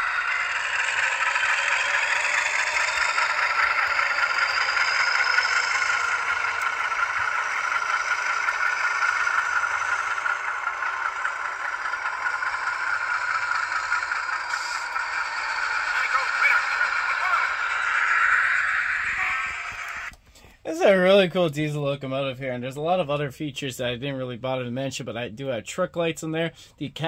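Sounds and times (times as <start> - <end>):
model train wheels rattling: 0.0 - 20.2
thin whine: 0.0 - 21.0
model locomotive engine sound: 0.0 - 21.2.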